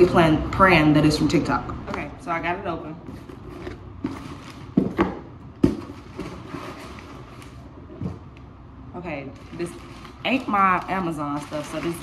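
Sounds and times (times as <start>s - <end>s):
cardboard box rustling: 3.1s - 5.0s, 5.6s - 8.2s
knocks on box and table: 4.8s - 6.3s.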